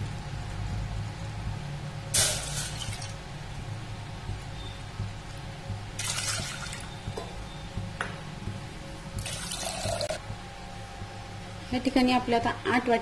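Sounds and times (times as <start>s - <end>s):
water pouring into metal pot: 6.0s - 6.8s.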